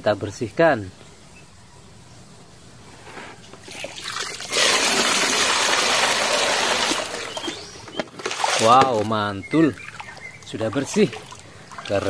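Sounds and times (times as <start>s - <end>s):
water pouring and splashing: 3.6s - 12.0s.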